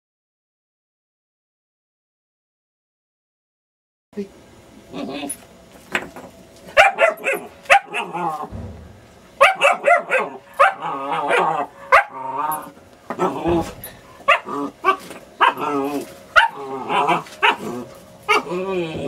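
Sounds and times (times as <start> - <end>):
puppy play-barking: 6.7 - 8.5, 9.4 - 18.7.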